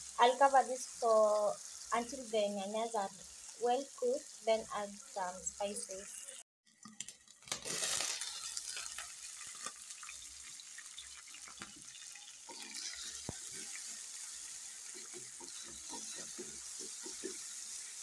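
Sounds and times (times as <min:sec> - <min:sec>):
vegetables sizzling in hot oil: 0:00.0 - 0:06.4, 0:07.1 - 0:18.0
wooden spoon tapping and scraping: 0:14.9 - 0:17.6.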